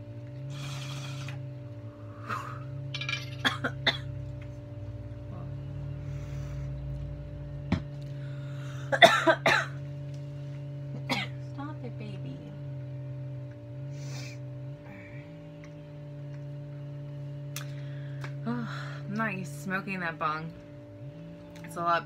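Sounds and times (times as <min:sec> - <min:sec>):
steady low hum: 0:00.0 - 0:22.0
woman coughing: 0:03.4 - 0:04.2, 0:08.8 - 0:09.8, 0:11.0 - 0:11.4.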